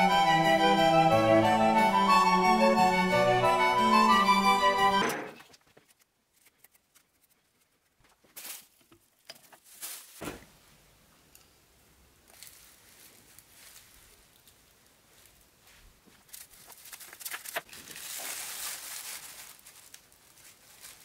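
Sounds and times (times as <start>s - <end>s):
background music: 0.0s - 5.4s
soft handling clicks and rustles: 12.2s - 21.0s.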